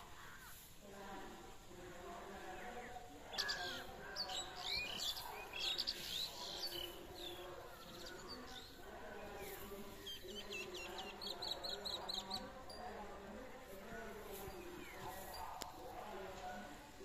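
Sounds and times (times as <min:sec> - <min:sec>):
small birds chirping: 0:02.4 - 0:13.0, 0:14.2 - 0:16.2.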